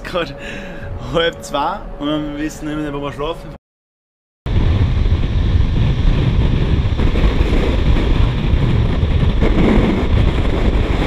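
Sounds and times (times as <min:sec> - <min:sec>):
train rumble: 0:04.5 - 0:11.0
wind buffeting microphone: 0:04.5 - 0:11.0.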